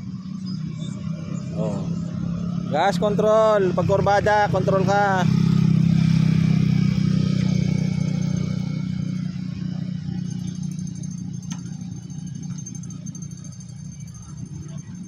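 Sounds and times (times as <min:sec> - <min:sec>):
motor scooter engine: 0:00.0 - 0:15.0.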